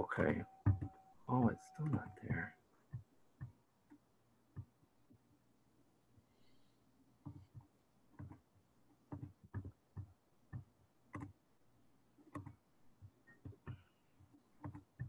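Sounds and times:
keyboard clicking: 0.2 - 3.5, 9.1 - 11.4, 12.2 - 12.6, 14.6 - 15.0
computer mouse clicking: 7.2 - 11.4, 12.2 - 12.6, 13.2 - 15.0.

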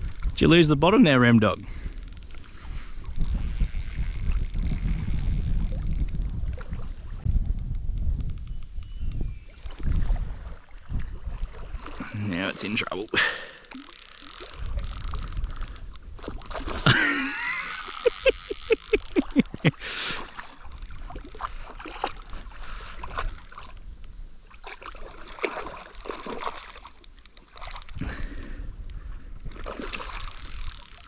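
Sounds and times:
water splashing and sloshing: 5.6 - 7.7, 9.4 - 17.2, 19.2 - 31.0
short clicks: 7.3 - 9.9.

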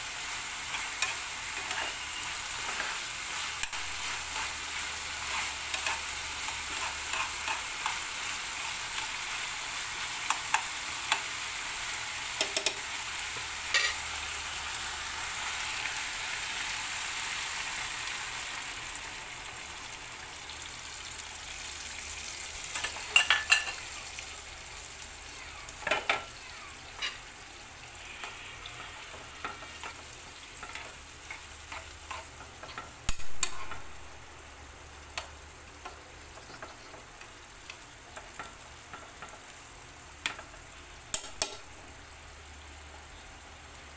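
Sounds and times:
food sizzling in a frying pan: 0.0 - 43.9
metal spoon scraping a pan: 0.6 - 9.1, 13.7 - 14.0, 26.9 - 27.3, 27.9 - 33.9.

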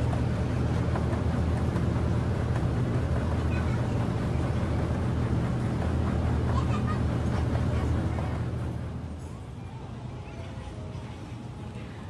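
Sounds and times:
ferry engine droning: 0.0 - 12.0
wind: 0.0 - 12.0.

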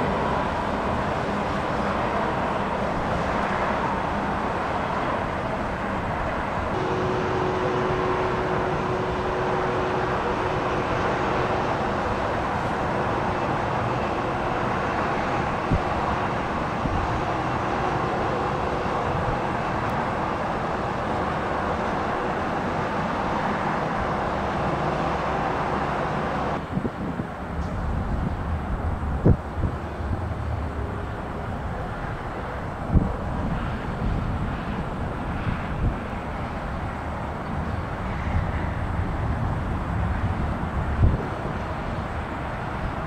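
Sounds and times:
jet engines running: 0.0 - 43.0
faint hum: 6.8 - 14.3.

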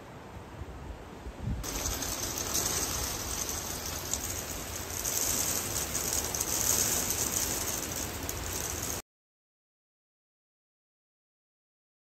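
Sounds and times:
rain falling: 1.6 - 9.0.

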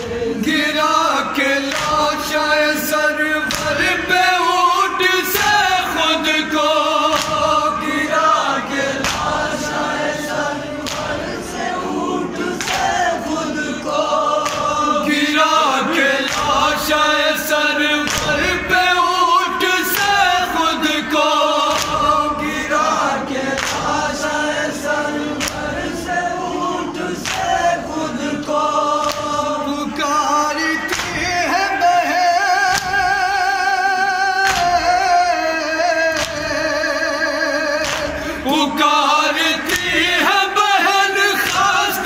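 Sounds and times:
men chanting a lament: 0.0 - 42.0
hands slapping chests: 1.6 - 2.3, 3.5 - 3.9, 7.0 - 7.7, 8.9 - 9.6, 10.8 - 11.4, 12.5 - 13.1, 14.4 - 14.8, 16.2 - 16.9, 18.0 - 18.7, 21.7 - 22.6, 23.5 - 24.0, 25.4 - 25.9, 27.2 - 27.6, 29.0 - 29.4, 34.4 - 34.9, 36.1 - 36.5, 37.8 - 38.4, 41.4 - 41.7.

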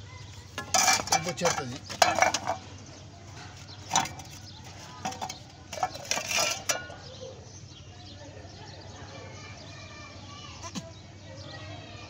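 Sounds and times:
metal pipe clanking against basin: 0.4 - 7.1.

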